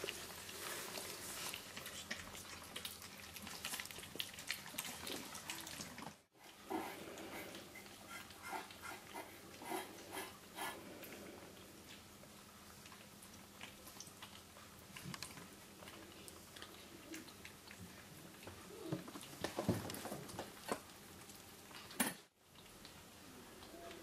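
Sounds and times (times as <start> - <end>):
kittens chewing and eating: 0.0 - 24.0.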